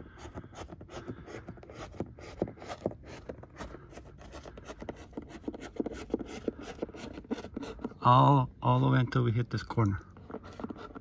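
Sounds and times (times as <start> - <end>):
fingers rubbing and scraping cable: 0.0 - 9.2, 9.8 - 11.0.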